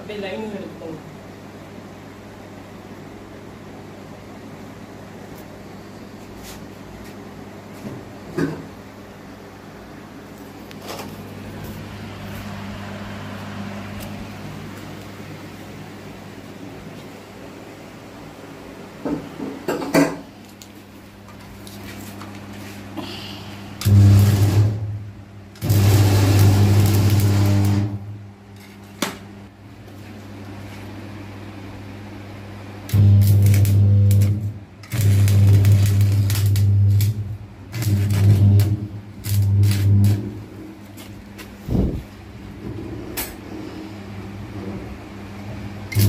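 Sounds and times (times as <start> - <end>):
welding arc crackling: 23.7 - 28.2, 32.8 - 41.8
transformer humming deeply: 32.9 - 40.8.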